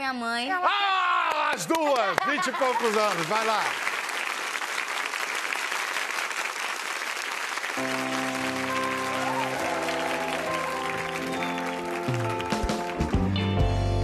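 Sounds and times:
audience applauding: 0:01.3 - 0:13.7
live band playing chords: 0:07.8 - 0:14.0.

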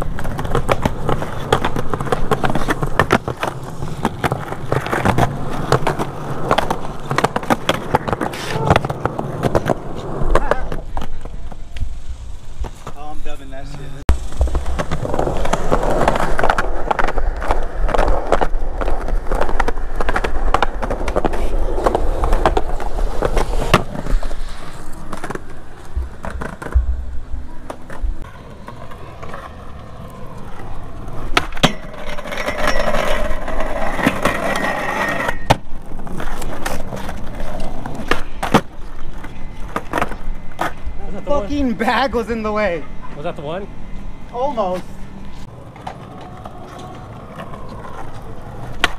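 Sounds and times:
skateboard clacking on ground: 0:00.0 - 0:11.9, 0:14.2 - 0:41.8, 0:45.5 - 0:48.9
skateboard wheels rolling on concrete: 0:00.0 - 0:48.9.

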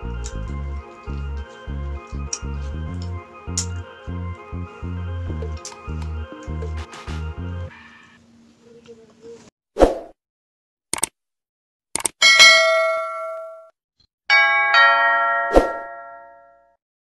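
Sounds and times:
bright bell ding: 0:12.2 - 0:13.7, 0:14.3 - 0:16.6
two-stroke chime: 0:12.2 - 0:13.7.

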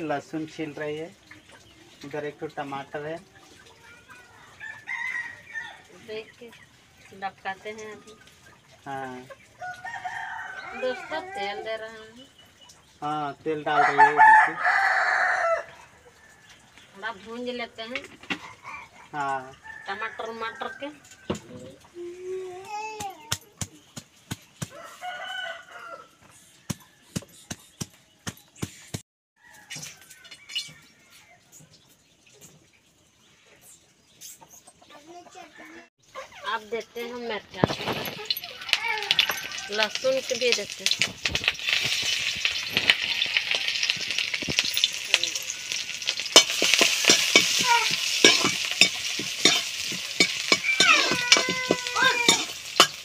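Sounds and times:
food sizzling in hot oil: 0:00.0 - 0:15.6, 0:36.5 - 0:53.0
ladle scraping metal pan: 0:40.8 - 0:53.0
grinding stone knocking on garlic: 0:46.1 - 0:53.0.

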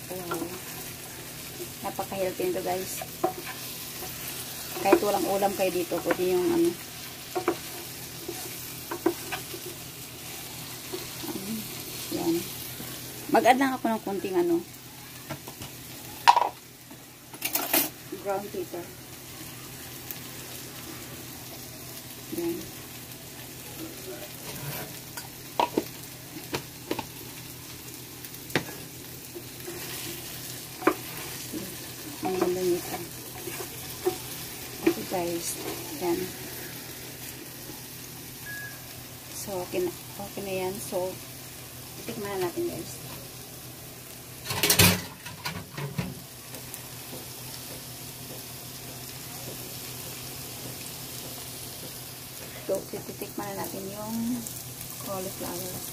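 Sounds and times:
vegetables sizzling in butter: 0:00.0 - 0:55.9
wooden spatula stirring: 0:29.4 - 0:37.0.

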